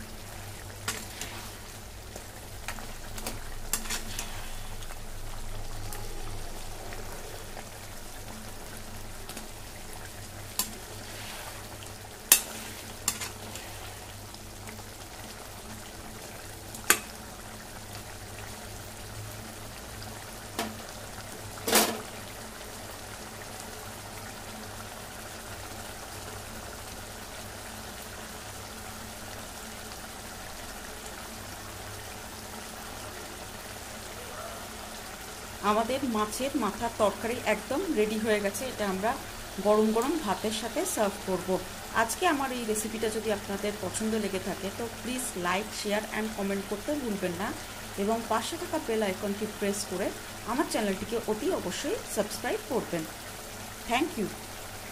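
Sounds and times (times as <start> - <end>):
curry simmering and bubbling: 0.0 - 54.9.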